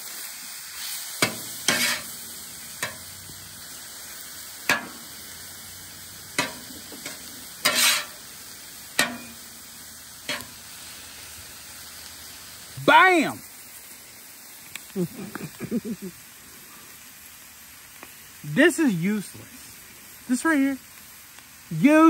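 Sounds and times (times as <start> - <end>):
chicken sizzling on griddle: 0.0 - 22.0
metal spatula scraping steel: 1.2 - 2.2, 6.4 - 8.2, 9.0 - 9.4, 10.2 - 10.6.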